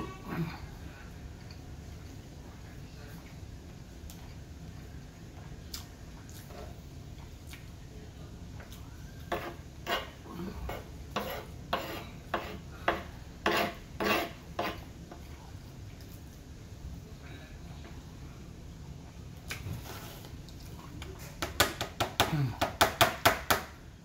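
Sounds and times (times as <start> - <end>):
spoon scraping on wooden board: 9.3 - 14.9.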